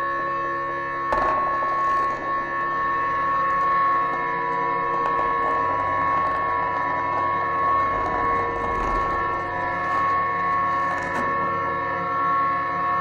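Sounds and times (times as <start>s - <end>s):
grainy rattling texture: 3.1s - 11.4s.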